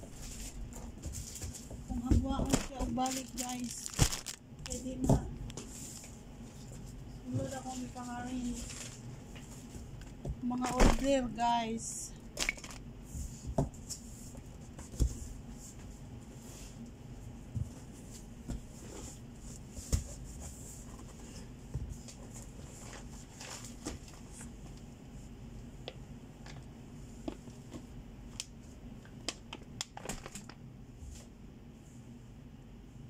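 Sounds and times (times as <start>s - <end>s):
steady low hum: 0.0s - 33.0s
plastic bags crinkling: 2.4s - 4.9s, 12.4s - 12.8s, 29.9s - 30.6s.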